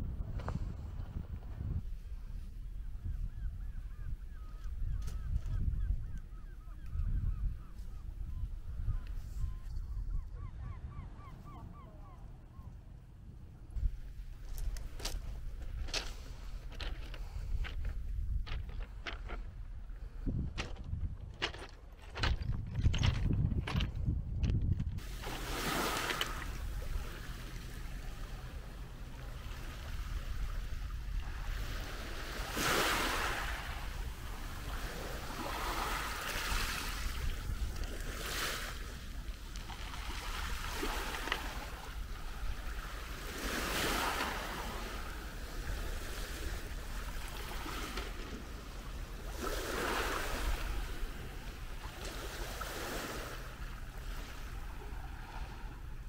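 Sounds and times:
waves hissing over pebbles: 0:25.0 - 0:30.6.

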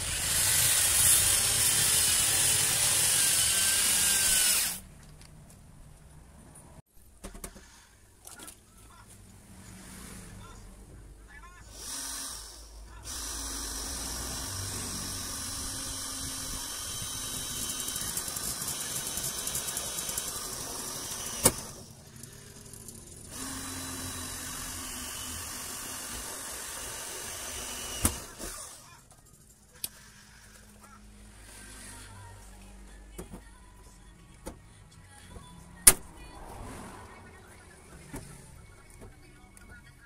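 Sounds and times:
drill boring through steel: 0:00.0 - 0:04.8, 0:11.7 - 0:29.0
sharp drill click: 0:13.1 - 0:21.8.

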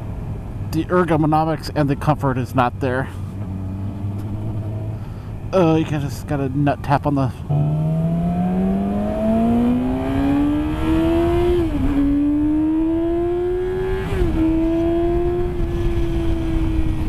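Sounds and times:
motorcycle engine accelerating: 0:03.4 - 0:05.1, 0:07.5 - 0:17.0.

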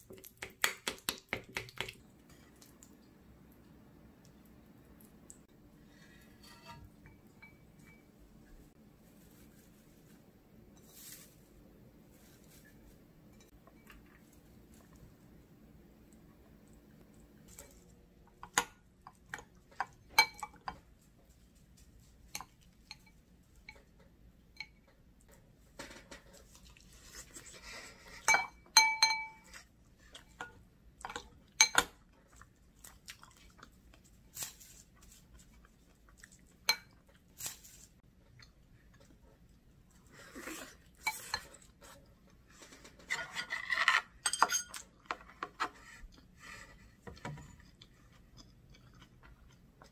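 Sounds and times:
spoon clinking against ceramic bowl: 0:06.5 - 0:08.1, 0:28.3 - 0:29.5, 0:44.2 - 0:44.8.

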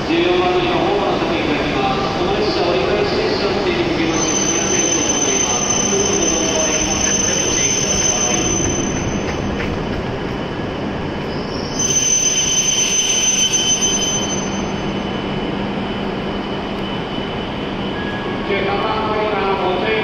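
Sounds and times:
train rumbling: 0:00.0 - 0:20.0
high brake squeal: 0:04.0 - 0:09.3, 0:11.3 - 0:15.5, 0:16.4 - 0:18.5.

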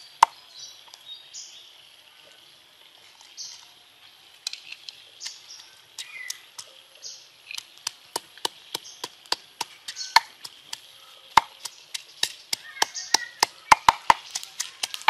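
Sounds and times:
wooden pestle pounding in mortar: 0:07.8 - 0:15.0.

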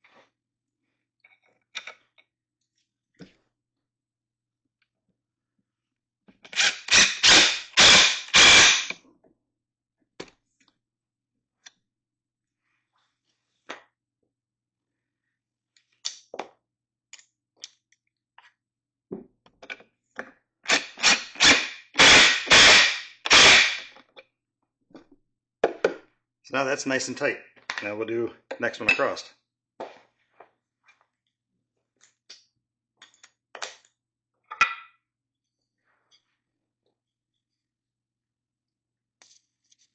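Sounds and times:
impact driver hammering: 0:06.6 - 0:08.9, 0:20.7 - 0:23.9.

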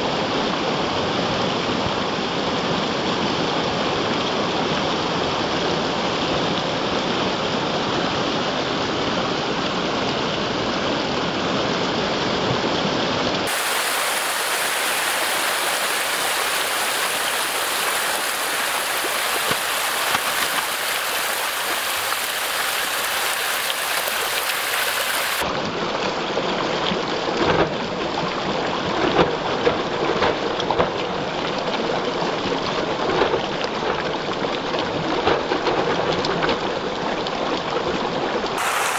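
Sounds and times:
feed pellets hissing: 0:13.5 - 0:25.4, 0:38.6 - 0:38.9
fish splashing in water: 0:13.5 - 0:25.5, 0:38.6 - 0:38.9.

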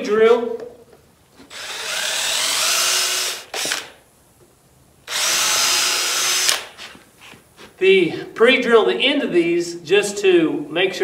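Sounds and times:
cordless drill boring wood: 0:01.5 - 0:04.0, 0:05.1 - 0:06.7.

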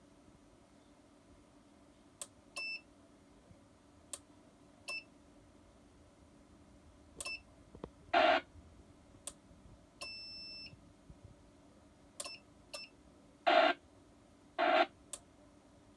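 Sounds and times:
receiver noise bursts: 0:08.1 - 0:08.5, 0:13.4 - 0:13.9, 0:14.6 - 0:15.0.

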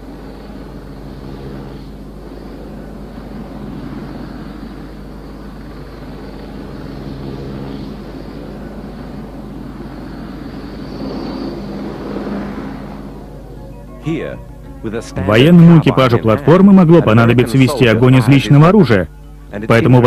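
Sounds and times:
ducted fan engines droning: 0:00.0 - 0:20.0.

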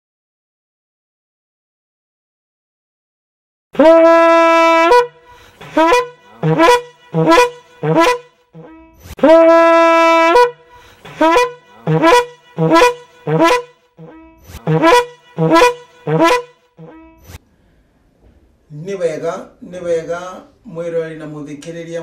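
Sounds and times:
horn jingle blasts: 0:03.8 - 0:17.4.

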